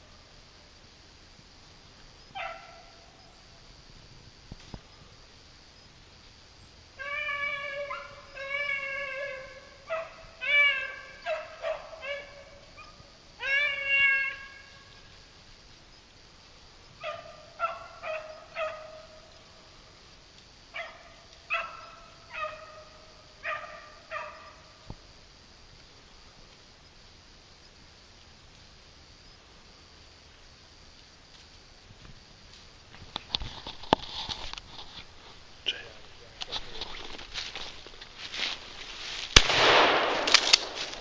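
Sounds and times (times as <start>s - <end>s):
dogs baying and barking: 2.3s - 3.0s, 7.0s - 14.3s, 17.0s - 19.2s, 20.8s - 24.7s.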